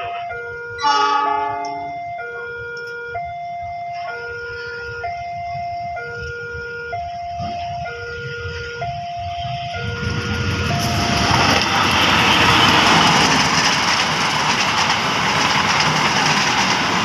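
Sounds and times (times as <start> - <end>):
loud horn blast: 0.0 - 1.9, 11.6 - 13.2
level crossing two-tone alarm: 0.0 - 13.7
low traffic rumble: 1.8 - 17.0.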